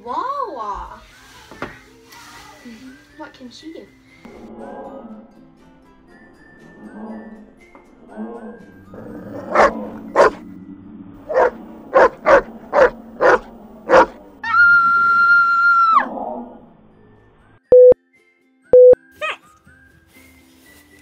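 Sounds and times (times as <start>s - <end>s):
dog barking: 9.4s - 10.4s, 11.3s - 14.2s
short loud beeps: 17.7s - 18.0s, 18.8s - 19.0s.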